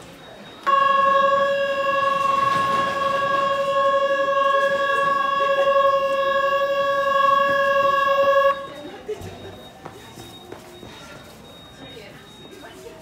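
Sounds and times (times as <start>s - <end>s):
platform departure buzzer: 0.6s - 8.9s.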